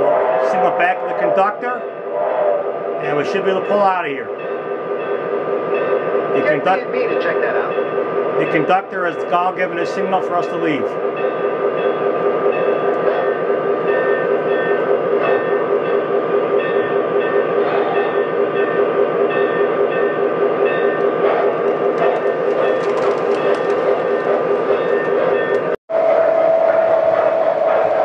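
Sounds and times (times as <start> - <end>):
wheel clatter: 20.8 - 25.8
sharp clicks of cars on track: 21.7 - 24.4.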